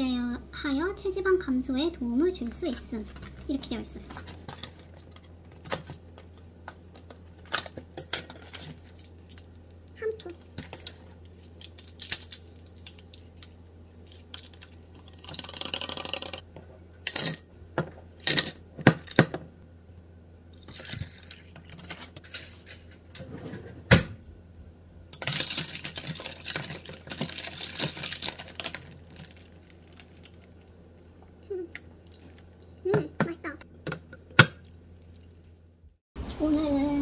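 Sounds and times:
ice cubes clinking in glass: 25.1 - 30.5.

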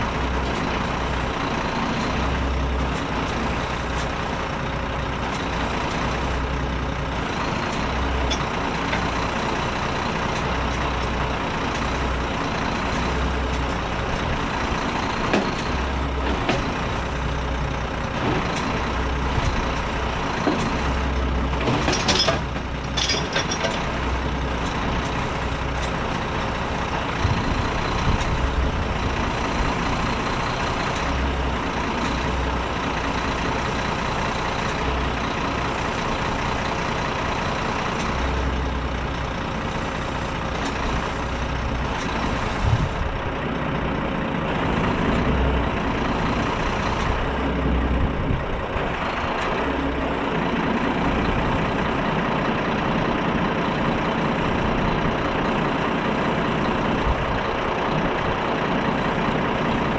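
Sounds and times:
truck diesel engine running: 0.0 - 59.9.

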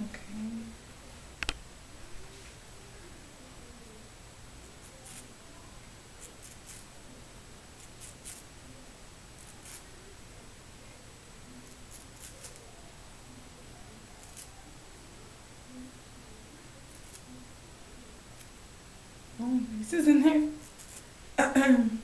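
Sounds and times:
razor rasping through hair: 4.9 - 5.3, 6.2 - 6.9, 7.8 - 8.5, 9.4 - 9.9, 11.7 - 12.6, 14.2 - 14.5, 16.9 - 17.3, 20.5 - 21.0.

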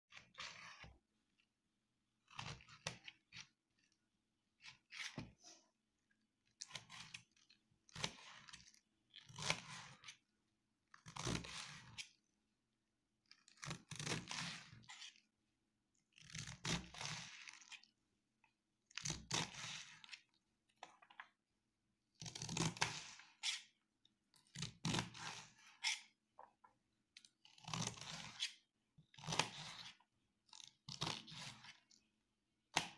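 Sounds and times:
knife slicing through cabbage: 11.1 - 12.1, 13.6 - 15.2, 16.2 - 17.9, 22.2 - 23.8, 24.6 - 26.2, 27.5 - 28.6, 29.2 - 30.0, 30.9 - 31.8.

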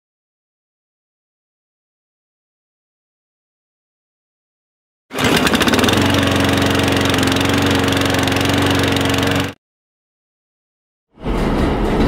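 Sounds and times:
lawnmower engine running: 5.1 - 9.6.

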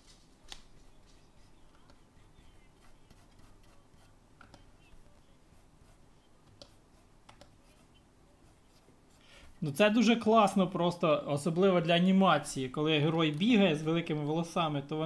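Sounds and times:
stylus scratching on tablet: 0.7 - 9.7.

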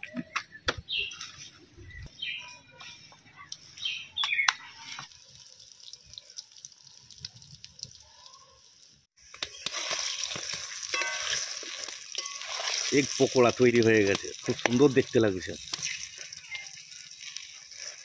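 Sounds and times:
food sizzling in hot oil: 4.6 - 18.0
metal spatula scraping a pan: 9.6 - 13.4.

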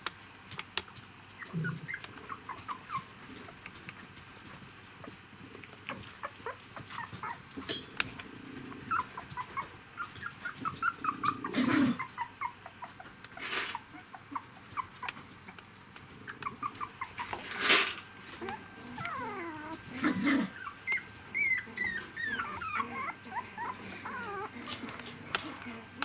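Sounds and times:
puppies squeaking and whimpering: 1.4 - 3.6, 5.9 - 7.9, 8.7 - 15.6, 16.2 - 17.7, 18.3 - 26.0.

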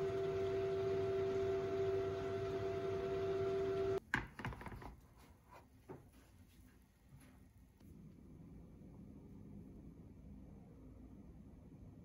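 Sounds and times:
oven humming with fan noise: 0.0 - 4.0.

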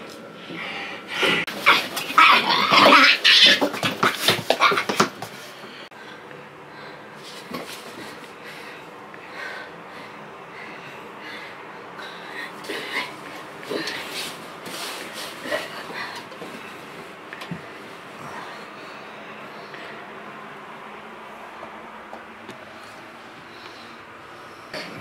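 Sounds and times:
bedding rustling: 12.8 - 18.6.

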